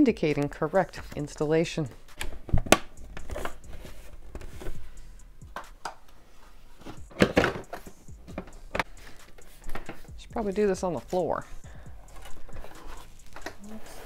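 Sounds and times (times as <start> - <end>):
hard plastic parts knocking: 6.9 - 10.5.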